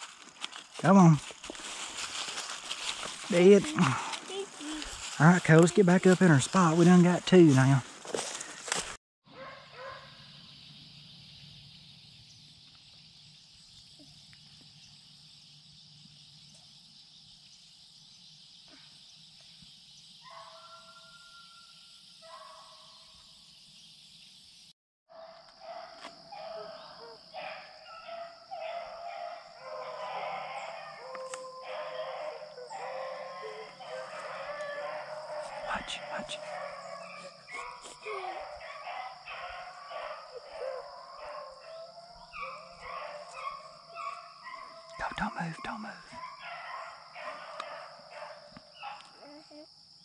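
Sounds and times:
hounds baying: 0:02.0 - 0:07.7, 0:25.2 - 0:49.2.

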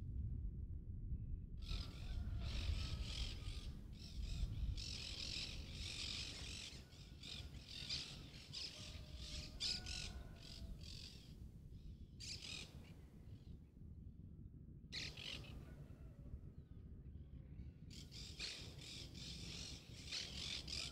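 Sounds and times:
low rumble: 0:00.0 - 0:08.6, 0:09.2 - 0:19.8
birds chirping and squawking: 0:01.6 - 0:11.4, 0:12.2 - 0:13.0, 0:15.0 - 0:15.8, 0:17.9 - 0:20.9.

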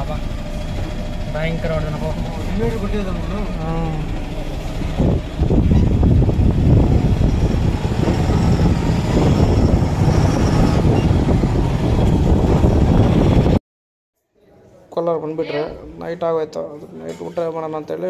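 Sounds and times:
lorry engine rumble: 0:00.0 - 0:13.6.

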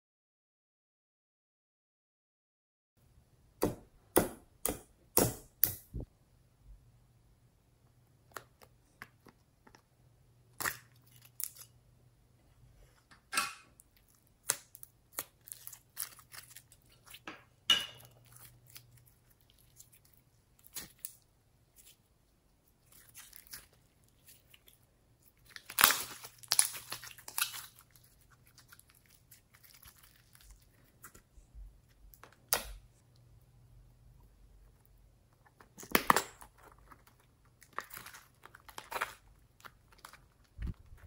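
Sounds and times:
slime squeezing and crackling: 0:13.9 - 0:17.2, 0:18.2 - 0:22.1, 0:22.7 - 0:31.3.

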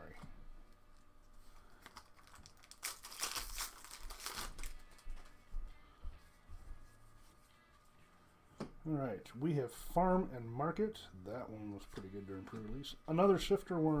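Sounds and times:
rustling of wrapper and cards: 0:00.8 - 0:05.4
foil wrapper tearing and crinkling: 0:01.7 - 0:05.0.

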